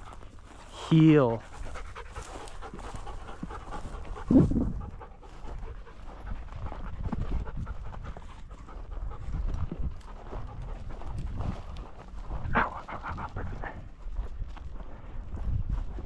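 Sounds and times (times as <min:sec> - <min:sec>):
dog panting: 0:00.0 - 0:16.0
footsteps through dry grass: 0:00.0 - 0:16.0.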